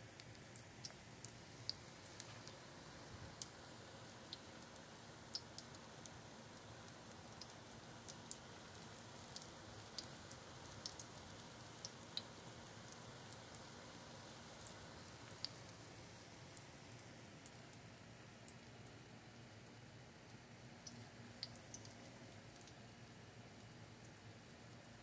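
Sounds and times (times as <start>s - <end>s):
oil sizzling in a pan: 0.0s - 17.6s.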